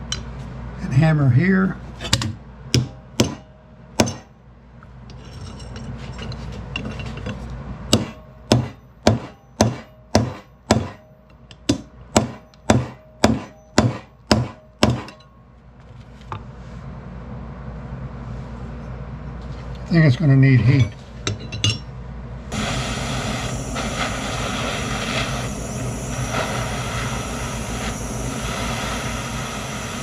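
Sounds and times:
hammer striking metal on anvil: 2.1s - 4.4s, 7.9s - 15.4s.

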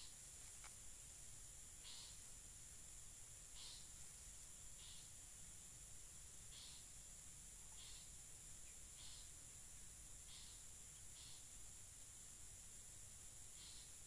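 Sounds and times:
insect buzz: 0.0s - 14.0s
short high insect chirp: 0.0s - 14.0s.

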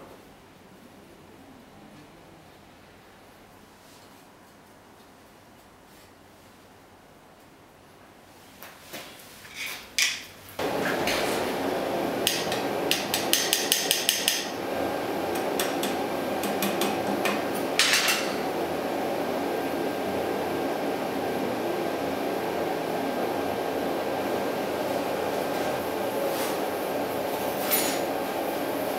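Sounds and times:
hammer tapping on metal: 12.2s - 14.5s, 15.3s - 18.4s.

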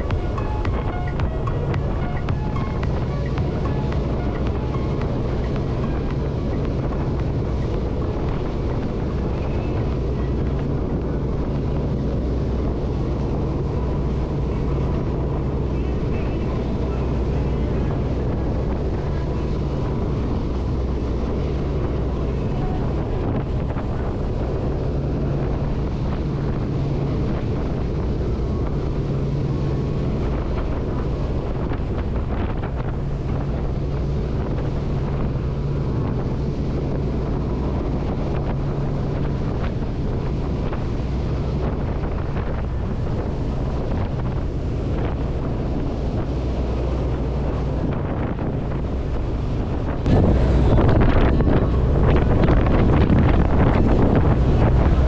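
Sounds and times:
low engine drone: 0.0s - 55.0s
rush of boat wake: 0.0s - 55.0s
wind buffeting microphone: 0.0s - 55.0s.

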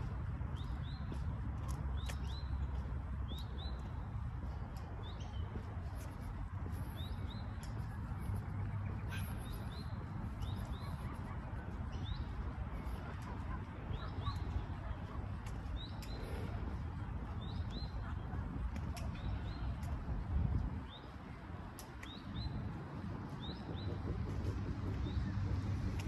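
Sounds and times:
birds chirping: 0.0s - 20.0s
steady low rumble: 0.0s - 26.0s.

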